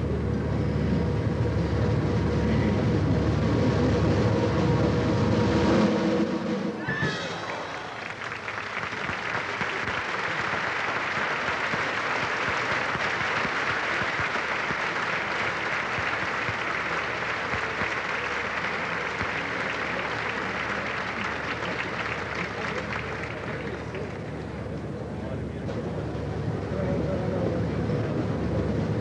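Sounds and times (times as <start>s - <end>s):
audience applauding: 7.2s - 24.7s.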